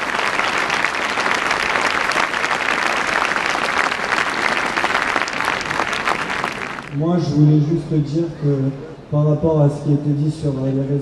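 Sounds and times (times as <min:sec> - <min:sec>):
large crowd applauding: 0:00.0 - 0:07.0.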